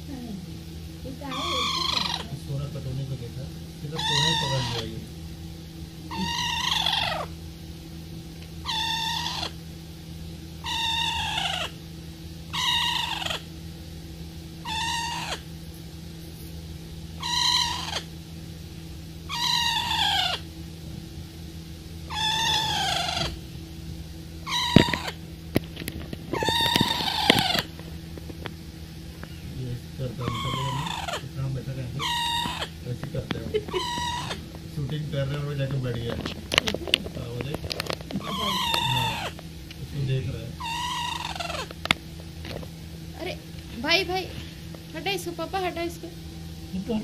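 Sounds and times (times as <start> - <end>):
parrot calling: 1.2 - 2.5, 3.9 - 5.0, 6.1 - 7.4, 8.6 - 9.6, 10.6 - 11.8, 12.5 - 13.5, 14.6 - 15.6, 17.2 - 18.2, 19.2 - 20.5, 22.0 - 23.5, 24.4 - 25.2, 26.3 - 27.8, 29.2 - 34.6, 37.0 - 39.5, 40.6 - 41.9.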